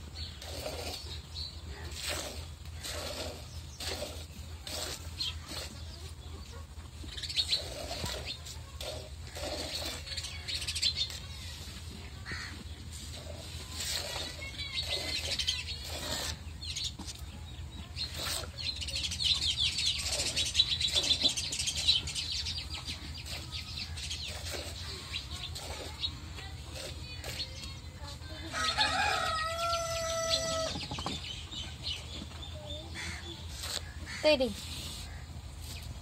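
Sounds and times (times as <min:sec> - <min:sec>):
small birds chirping: 0:00.0 - 0:36.0
milk squirting into bucket: 0:00.2 - 0:01.3, 0:01.9 - 0:06.0, 0:07.5 - 0:11.2, 0:13.2 - 0:16.4, 0:18.0 - 0:18.7, 0:24.2 - 0:27.6.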